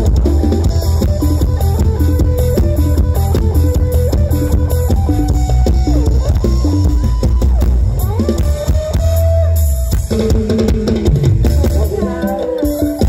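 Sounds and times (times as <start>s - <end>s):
plucked string lead melody: 0.0s - 7.1s
heavy bass: 0.0s - 12.1s
drum kit: 0.0s - 13.0s.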